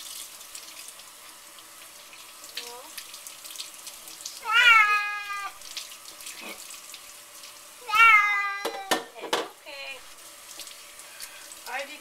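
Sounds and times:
tap water splashing: 0.0 - 11.8
cat meowing: 4.4 - 5.6, 7.8 - 9.0.

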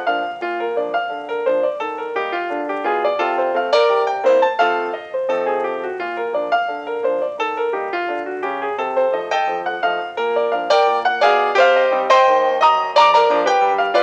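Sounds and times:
fast piano music: 0.0 - 14.0.

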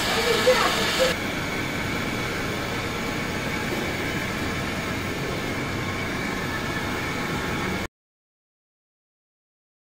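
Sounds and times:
machine humming and rumbling: 0.0 - 7.9.

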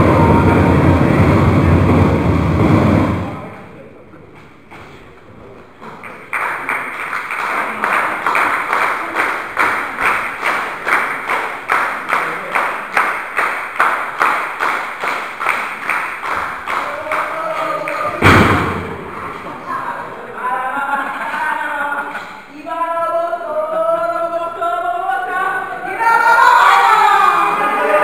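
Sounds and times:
crowd clapping in unison: 5.8 - 18.2.

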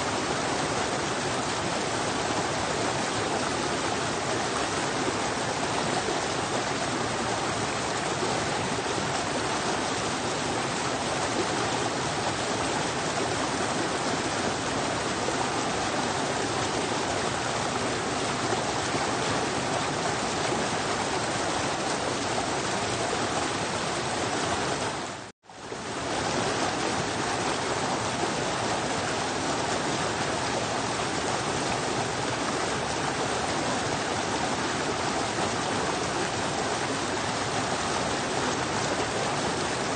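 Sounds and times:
stream rushing down cascade: 0.0 - 39.9.

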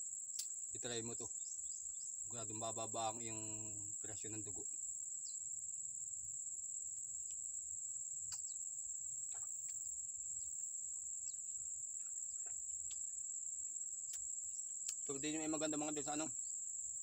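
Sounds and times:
insects trilling: 0.0 - 17.0
faint clicks and chirps: 0.3 - 0.7, 7.2 - 8.6, 9.2 - 13.2, 14.0 - 15.3.

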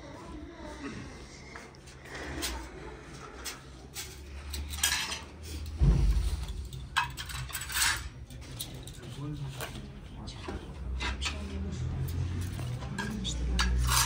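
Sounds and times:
dishes and cutlery clinking: 3.4 - 14.0
heavy low thump: 5.8 - 7.0.

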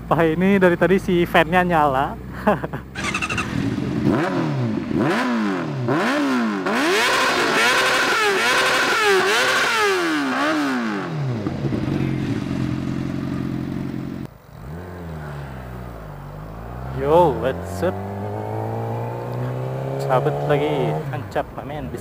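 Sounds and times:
motorcycle engine idling: 0.0 - 4.9, 11.3 - 16.9
motorcycle engine revving: 2.9 - 22.0.

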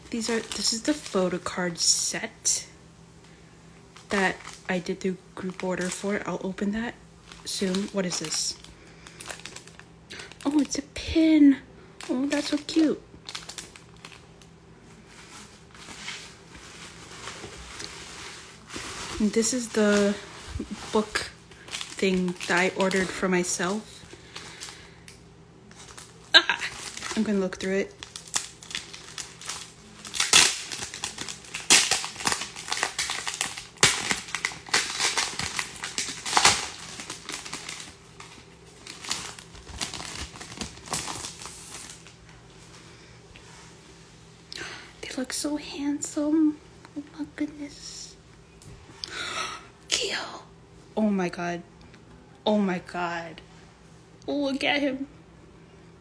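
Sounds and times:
bubble wrap rustling and crackling: 0.0 - 2.4, 3.9 - 11.2, 12.0 - 42.8
plastic sleeve crinkling: 0.2 - 1.8, 4.0 - 11.1, 12.0 - 42.4.

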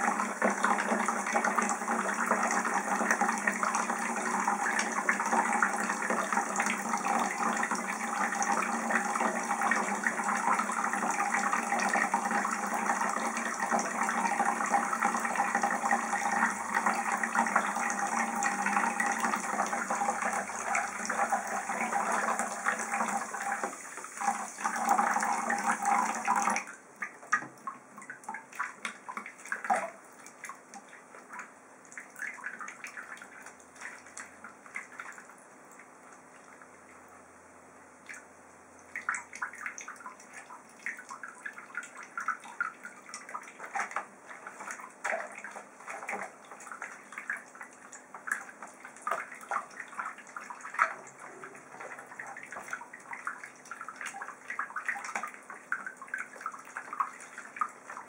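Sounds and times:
faucet running into basin: 0.0 - 26.7
water dripping in basin: 26.5 - 37.1, 38.0 - 58.0.

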